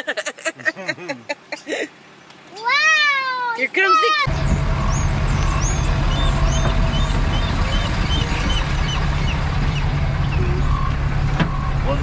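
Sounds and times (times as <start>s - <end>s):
slow car rumble: 0.0s - 12.0s
small birds chirping: 3.7s - 11.0s.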